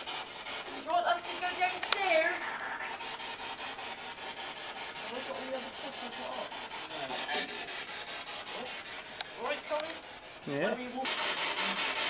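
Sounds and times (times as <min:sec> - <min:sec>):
radio static bursts: 0:01.0 - 0:03.5.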